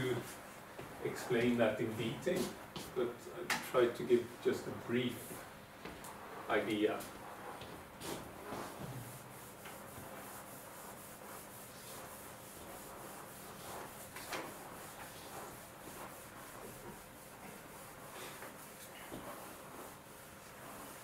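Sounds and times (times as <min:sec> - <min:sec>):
faint rubbing and scraping: 0:06.2 - 0:21.0.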